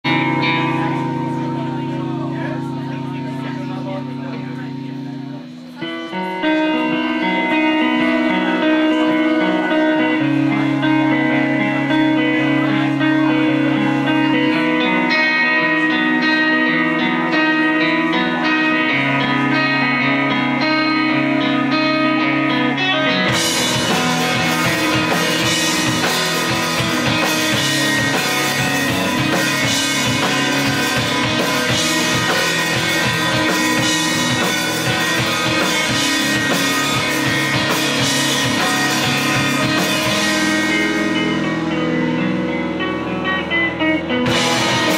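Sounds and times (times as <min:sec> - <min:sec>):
bass guitar: 0:00.0 - 0:44.9
electric guitar: 0:00.0 - 0:44.9
drum kit with cymbals: 0:23.2 - 0:44.9.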